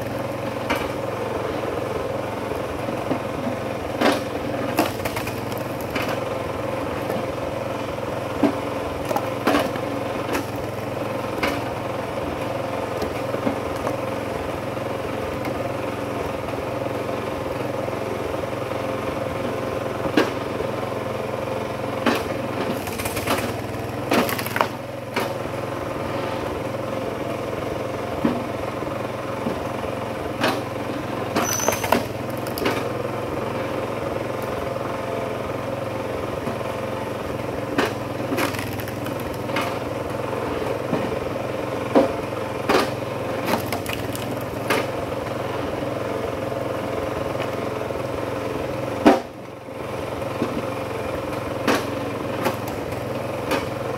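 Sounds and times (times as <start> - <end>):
log splitter engine running: 0.0 - 53.9
wood splitting cracks: 4.1 - 6.2, 9.0 - 9.3, 22.7 - 24.8, 31.4 - 32.9, 37.8 - 39.8, 42.7 - 44.9, 51.7 - 53.7.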